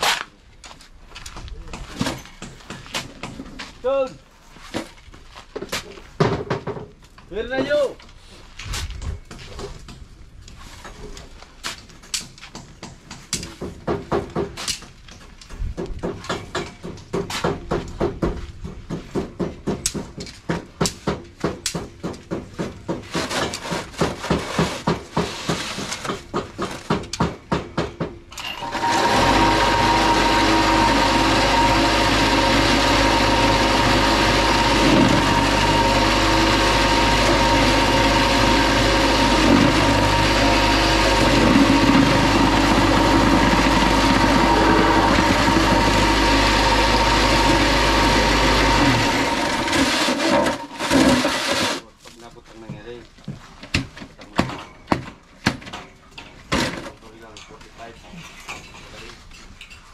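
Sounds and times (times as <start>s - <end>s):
block machine motor humming: 28.6s - 51.8s.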